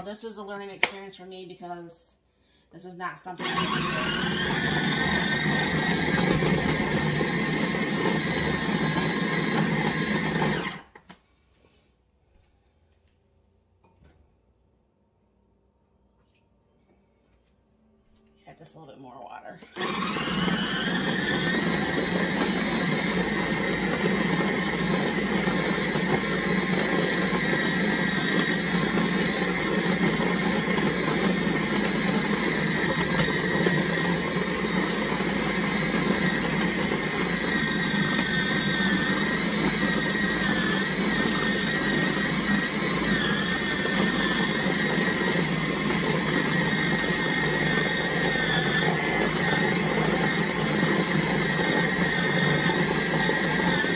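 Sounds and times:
food processor motor whine: 0:03.4 - 0:11.0, 0:19.6 - 0:53.9.

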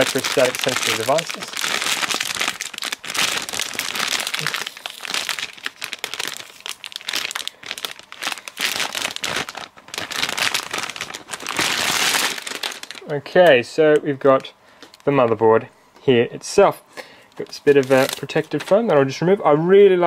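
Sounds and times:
plastic bag crinkling: 0:00.0 - 0:13.4, 0:17.4 - 0:19.2.

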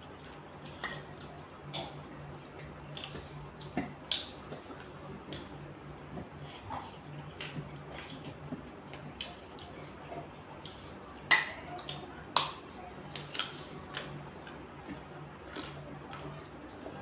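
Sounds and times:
low steady hum: 0:00.0 - 0:17.0
chewing clicks and smacks: 0:07.2 - 0:14.6.

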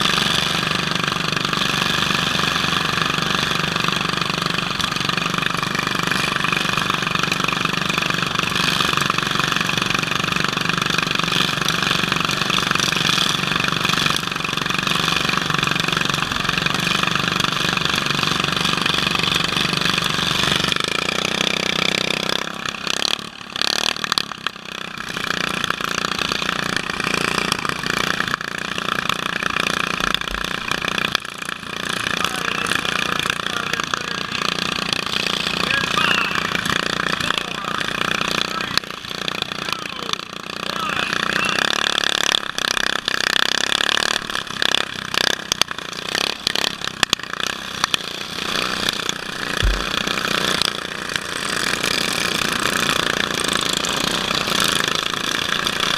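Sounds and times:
riding lawn mower engine running: 0:00.0 - 0:55.9.

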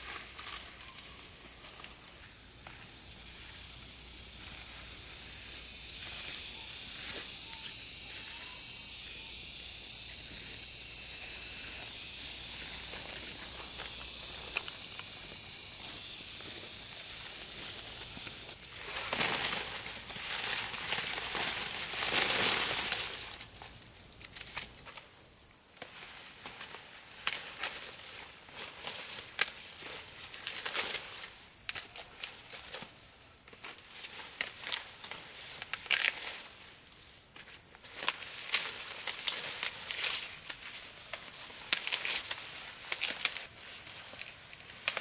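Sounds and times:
high-pitched hiss: 0:00.0 - 0:45.0
rustling: 0:10.4 - 0:25.0.

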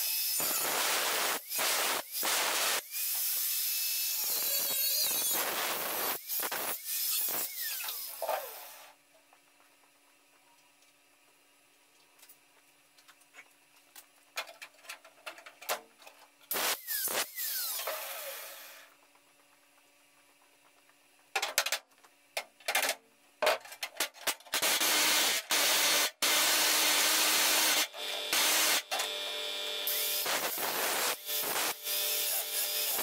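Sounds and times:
power tool winding down: 0:16.5 - 0:18.9.

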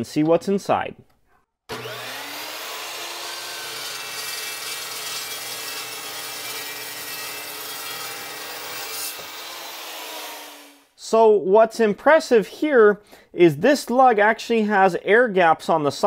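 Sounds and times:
chop saw motor hum: 0:01.7 - 0:10.9
saw blade grinding metal: 0:01.7 - 0:10.9.

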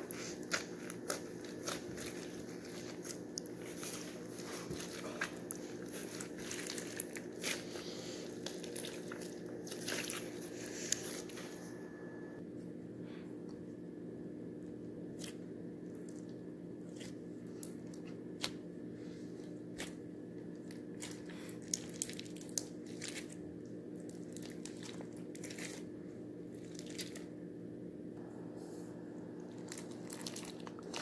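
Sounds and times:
slime crackling and popping: 0:00.0 - 0:11.3, 0:20.6 - 0:23.4, 0:29.4 - 0:31.0
steady low hum: 0:00.0 - 0:31.0.

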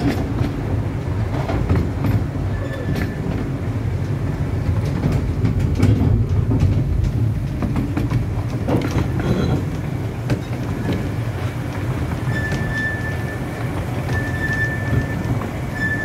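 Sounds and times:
clicks over rail joints: 0:00.0 - 0:16.0
train wheels rumbling on track: 0:00.0 - 0:16.0
wheels squealing on curve: 0:02.5 - 0:03.3, 0:12.2 - 0:16.0.

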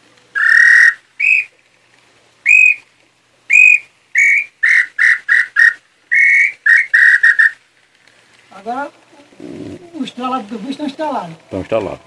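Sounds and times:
high whistled bird call notes: 0:00.3 - 0:01.6, 0:02.4 - 0:02.9, 0:03.5 - 0:07.6.

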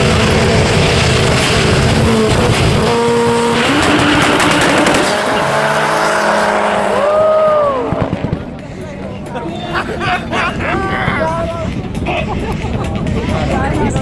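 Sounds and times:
engine revving: 0:00.0 - 0:08.4
car engine at full throttle: 0:00.0 - 0:08.8.

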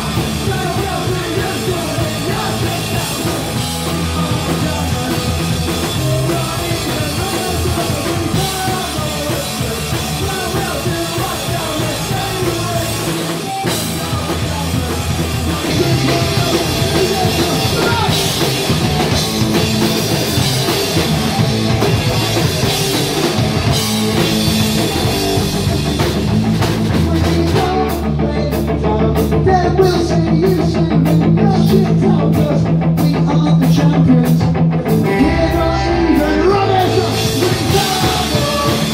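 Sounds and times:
singer shouting: 0:00.0 - 0:19.1, 0:35.0 - 0:38.9
punk rock band playing: 0:00.0 - 0:38.9.

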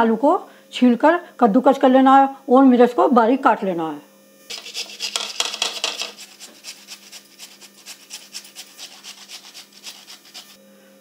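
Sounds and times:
potato rasping on metal grater: 0:04.5 - 0:10.6.

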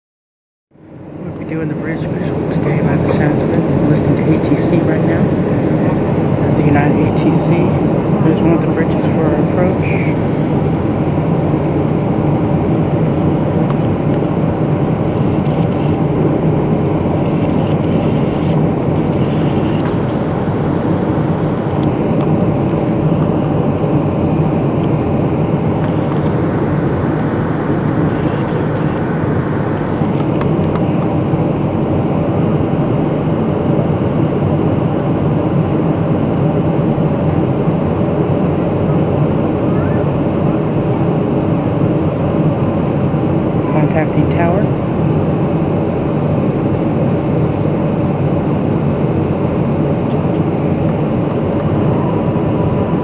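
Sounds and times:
airplane engine hum: 0:00.7 - 0:53.0
rush of airflow: 0:02.1 - 0:43.6.

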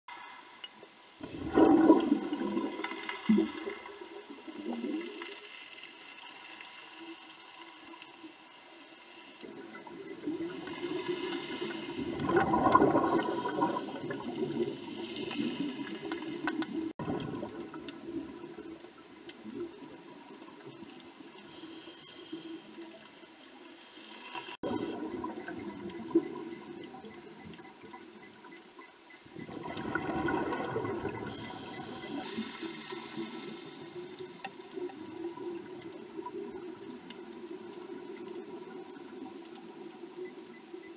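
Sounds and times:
underwater wash: 0:00.1 - 0:40.9
hissing inhalations: 0:13.0 - 0:14.0.

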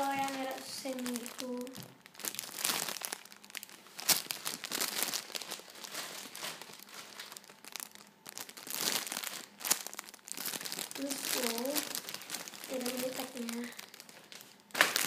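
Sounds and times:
plastic wrapping crinkling: 0:00.0 - 0:15.0.

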